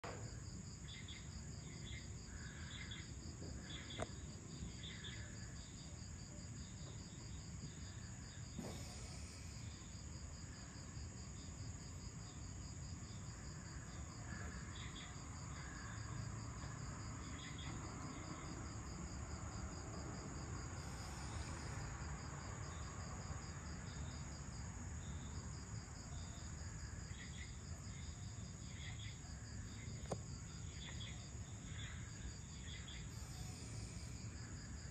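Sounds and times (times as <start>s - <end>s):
insect trilling: 30.8s - 34.9s.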